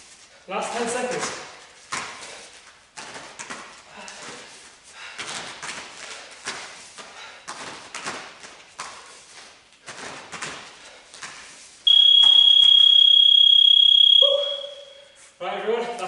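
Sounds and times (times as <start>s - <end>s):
bare feet thudding on foam mats: 1.1s - 12.4s
high electronic timer beep: 11.9s - 15.2s.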